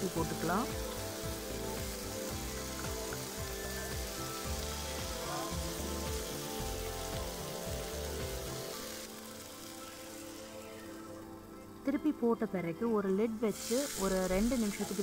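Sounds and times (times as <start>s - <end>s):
chicken sizzling in a pan: 0.0s - 12.0s, 13.5s - 15.0s
background music with held tones: 0.0s - 15.0s.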